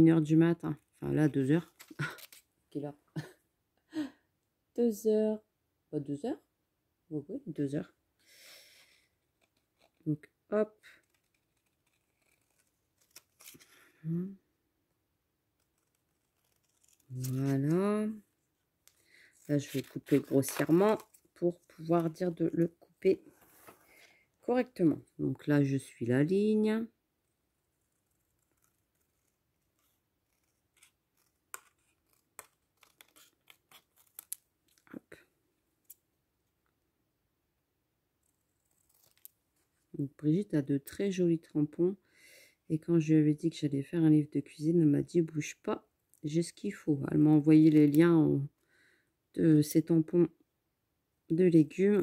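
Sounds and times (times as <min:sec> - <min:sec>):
scissors snipping paper: 0:10.9 - 0:13.8, 0:15.6 - 0:17.8, 0:18.8 - 0:22.3, 0:28.1 - 0:34.9, 0:38.5 - 0:39.4
small scissors snipping: 0:30.4 - 0:34.8.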